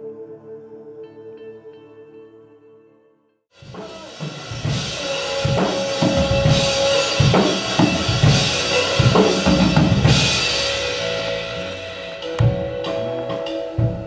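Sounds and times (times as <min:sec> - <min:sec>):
rock band playing: 0:03.6 - 0:14.0.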